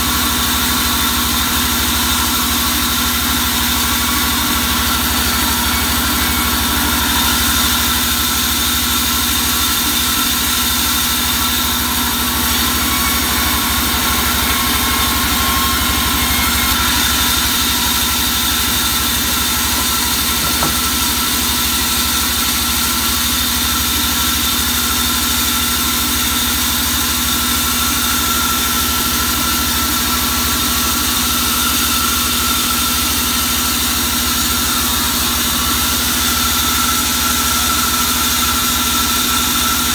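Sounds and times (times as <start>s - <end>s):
band saw running: 0.0s - 39.9s.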